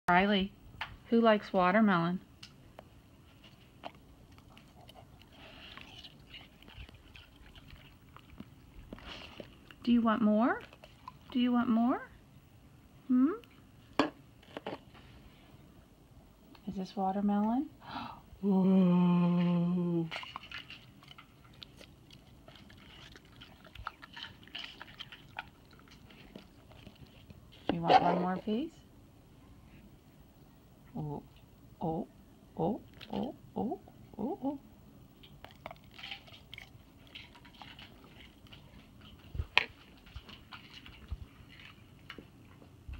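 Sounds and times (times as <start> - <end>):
dog chewing with wet crunches: 2.6 - 12.1, 20.1 - 28.7, 35.1 - 42.9.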